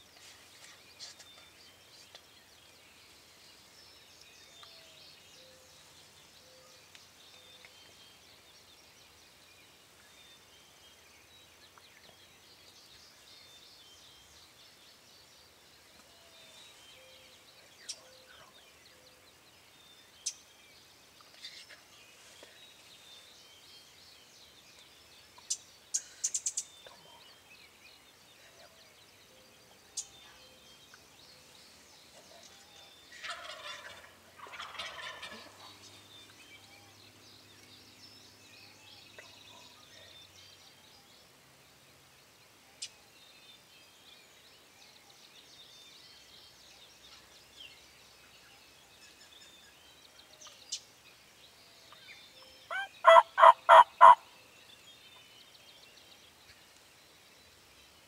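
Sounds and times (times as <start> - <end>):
songbird chirps: 0.0 - 58.0
turkey gobbling: 33.2 - 35.7, 52.7 - 54.2.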